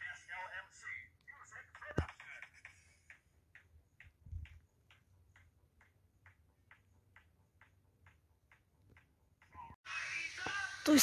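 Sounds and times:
faint regular ticking: 0:02.7 - 0:09.5.

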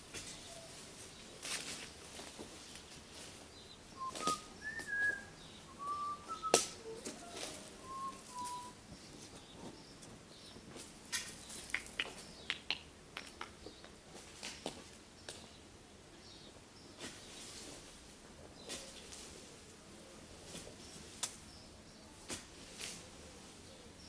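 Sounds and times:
soft whistled chirps: 0:04.0 - 0:08.8.

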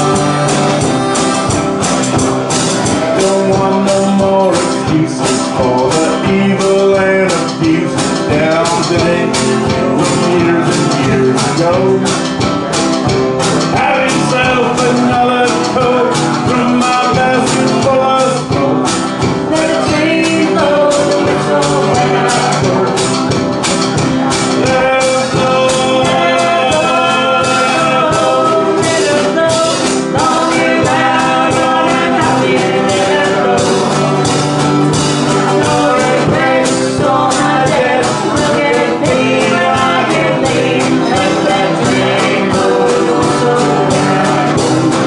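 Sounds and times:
acoustic guitar: 0:00.0 - 0:45.0
banjo: 0:00.0 - 0:45.0
drums with steady beat: 0:00.0 - 0:45.0
harmonica: 0:00.0 - 0:45.0
woman singing: 0:13.8 - 0:23.4, 0:24.3 - 0:34.3, 0:35.5 - 0:45.0.

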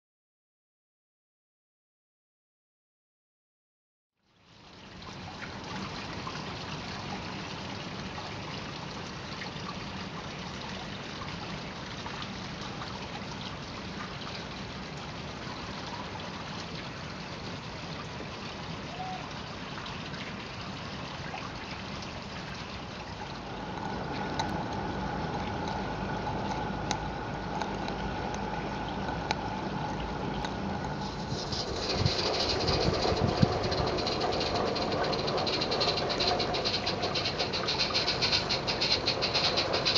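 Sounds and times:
trickling: 0:20.1 - 0:39.9
steady hiss: 0:22.9 - 0:39.9
wheels clicking on track: 0:23.3 - 0:39.9
model steam locomotive: 0:23.4 - 0:39.9.

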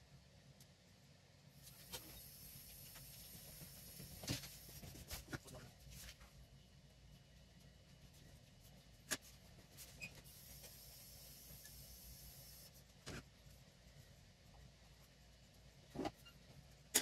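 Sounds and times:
faint high hiss of pen: 0:01.6 - 0:05.0, 0:09.8 - 0:12.8.

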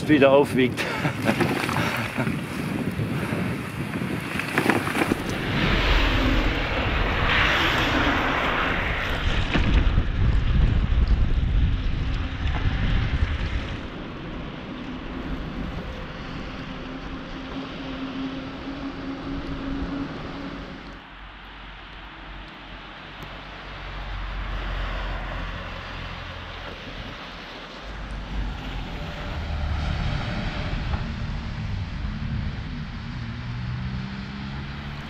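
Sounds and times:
wind buffeting microphone: 0:00.0 - 0:21.0
bicycle tyres on wet road: 0:00.7 - 0:35.0.

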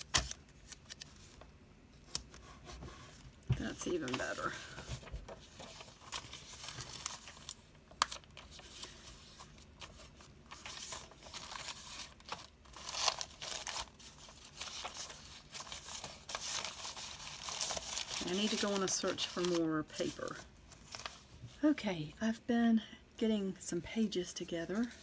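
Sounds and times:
paper pages rustling: 0:02.1 - 0:21.5.

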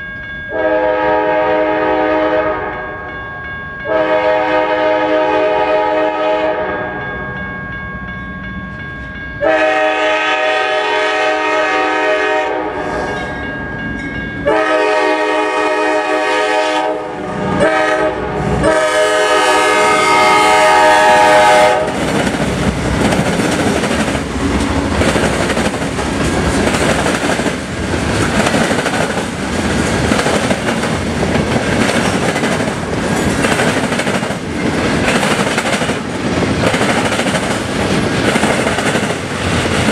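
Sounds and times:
train rumbling past: 0:00.0 - 0:39.9
locomotive air horn blasts: 0:00.5 - 0:02.8, 0:03.9 - 0:06.9, 0:09.4 - 0:13.2, 0:14.4 - 0:22.0.

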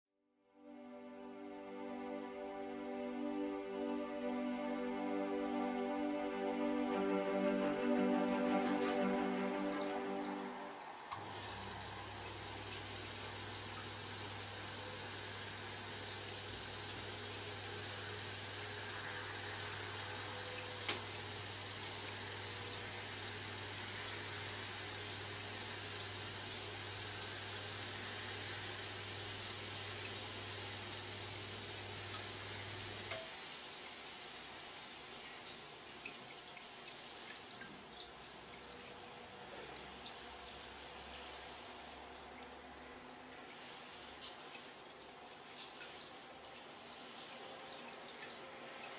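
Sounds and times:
pump humming: 0:08.3 - 0:33.2.

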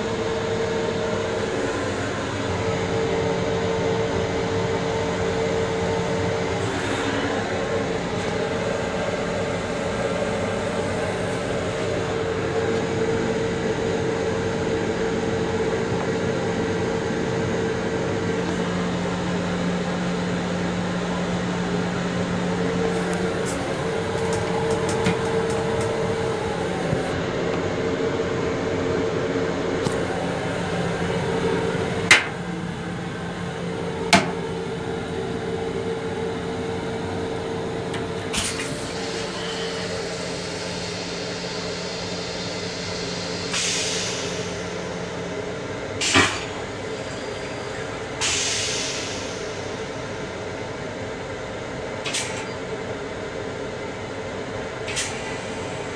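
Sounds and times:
ventilation hum: 0:00.0 - 0:40.2.

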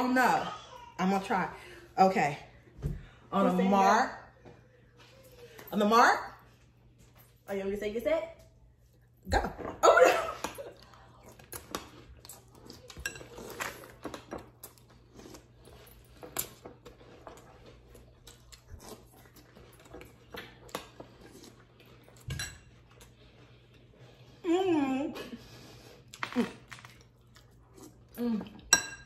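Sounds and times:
spoons clinking on glass bowls: 0:28.7 - 0:29.0.

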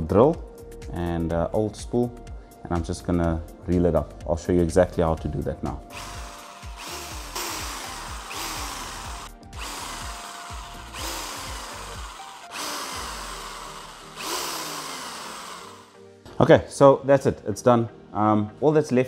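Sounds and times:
electric drill bursts: 0:05.9 - 0:16.1.

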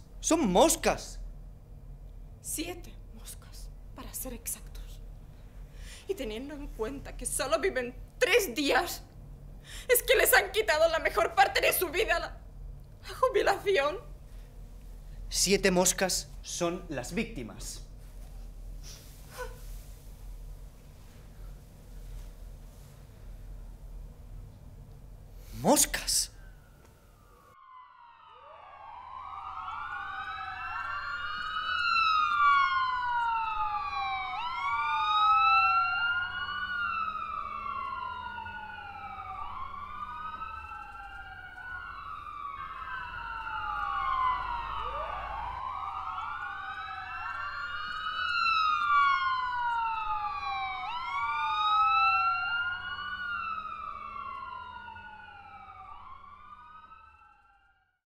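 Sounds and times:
sirens wailing: 0:25.6 - 0:58.0.

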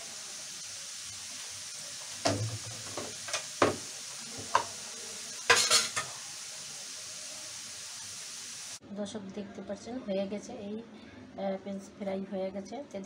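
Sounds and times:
fries sizzling in hot oil: 0:00.0 - 0:08.8.

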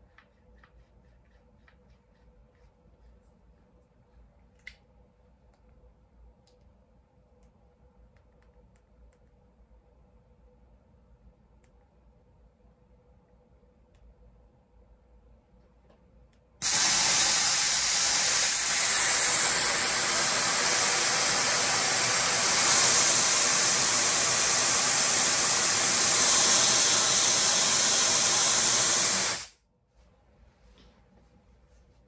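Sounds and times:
freezing gas spray hiss: 0:16.6 - 0:29.5.

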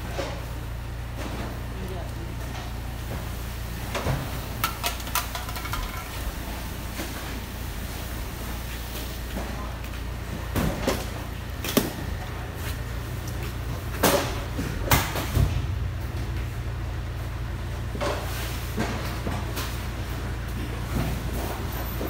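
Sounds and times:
steady low hum: 0:00.0 - 0:22.0
cartons banging in steel container: 0:04.5 - 0:06.4.

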